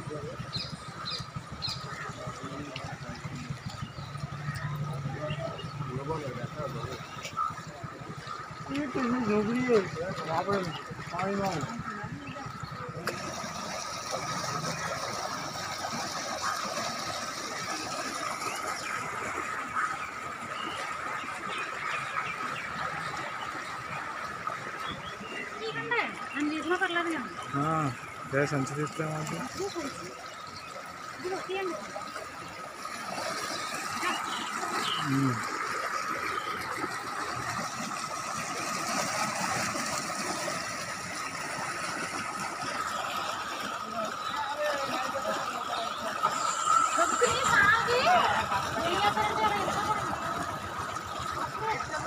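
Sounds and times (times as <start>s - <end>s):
floodwater rushing and churning: 0.0s - 52.0s
river rushing against a wall: 30.8s - 52.0s
constant thin high tone: 42.5s - 49.9s.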